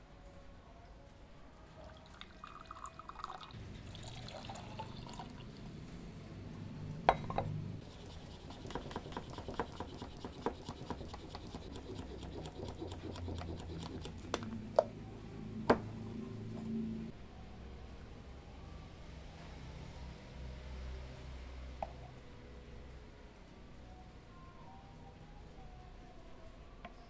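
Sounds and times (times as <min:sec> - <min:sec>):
coffee pouring into glass: 0:01.8 - 0:05.7
plunger clicking and rattling: 0:07.9 - 0:14.5.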